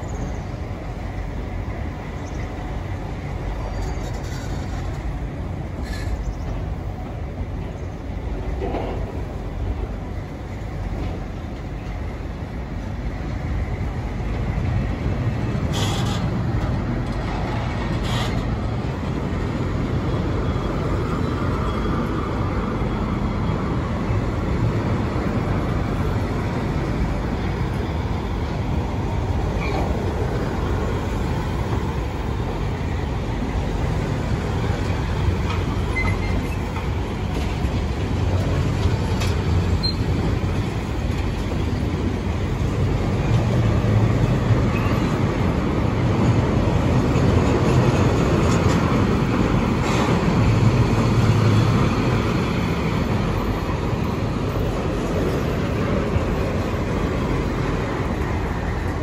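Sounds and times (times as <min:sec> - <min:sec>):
train wheels rumbling on rail: 0:00.0 - 0:59.0.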